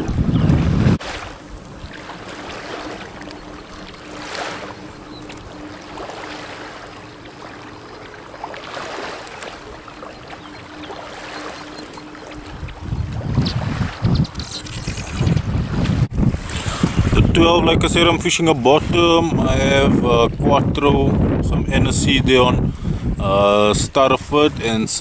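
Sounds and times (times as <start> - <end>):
water lapping: 0.0 - 21.4
soft wind: 0.0 - 25.0
wind buffeting microphone: 0.0 - 25.0.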